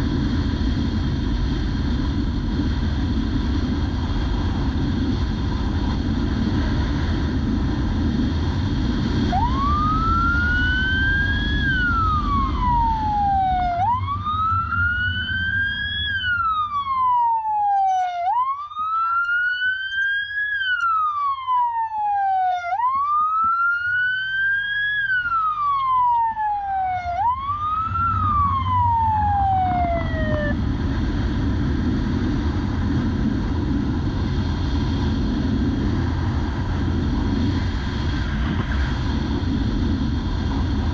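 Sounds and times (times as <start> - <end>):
wind and engine rush: 0.0 - 40.9
motorcycle siren wailing: 9.2 - 30.6.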